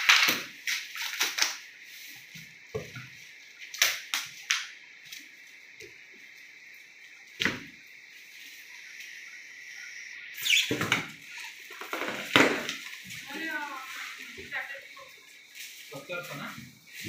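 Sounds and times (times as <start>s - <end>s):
packing tape pulled off roll: 0.0s - 1.6s.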